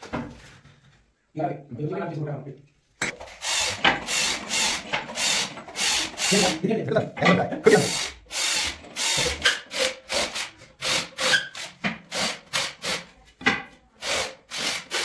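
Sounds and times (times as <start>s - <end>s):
cordless drill boring into wood: 3.3s - 6.6s, 7.8s - 13.0s, 14.0s - 15.0s.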